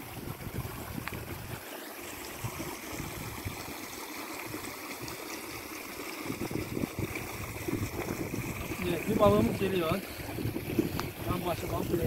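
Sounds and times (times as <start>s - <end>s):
wind rumble on microphone: 0.0s - 1.6s, 2.4s - 3.7s, 6.2s - 12.0s
creek water running over stones: 0.0s - 12.0s.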